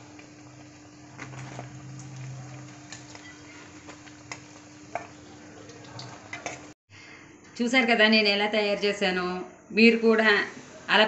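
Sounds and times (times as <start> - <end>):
food deep-frying in oil: 0.0 - 6.8.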